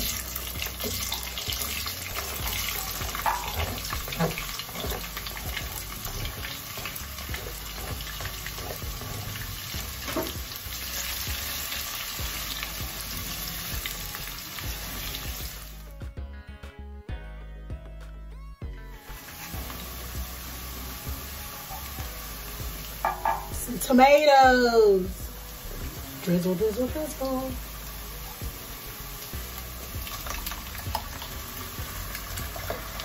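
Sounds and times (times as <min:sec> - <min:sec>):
onions sizzling in oil: 0:00.0 - 0:15.9, 0:19.0 - 0:33.0
background music: 0:00.0 - 0:33.0
spatula scraping and knocking pot: 0:02.2 - 0:10.5.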